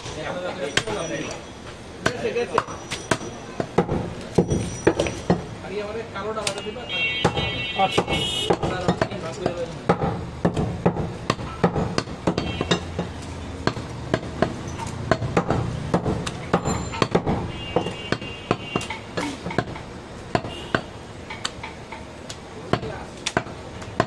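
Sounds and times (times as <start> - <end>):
knife chopping meat on wood: 7.2 - 21.8.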